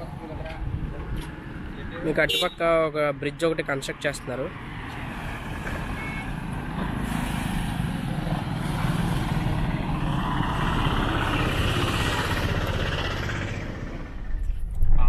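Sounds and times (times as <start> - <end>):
engine and tyre rumble: 0.0 - 15.0
auto-rickshaw driving by: 4.7 - 14.5
motorcycles driving by: 6.9 - 14.4.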